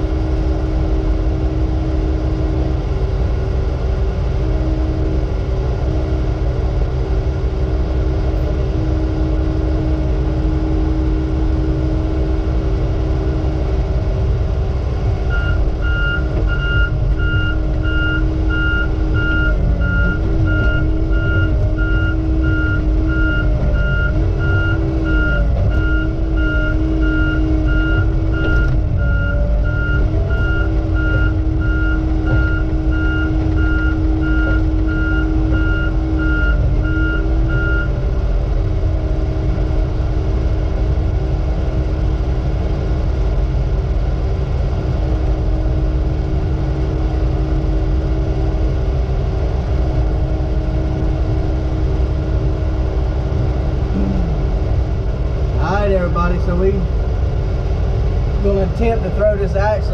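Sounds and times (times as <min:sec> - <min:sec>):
diesel engine running: 0:00.0 - 0:59.9
backup alarm beeping: 0:15.3 - 0:37.9.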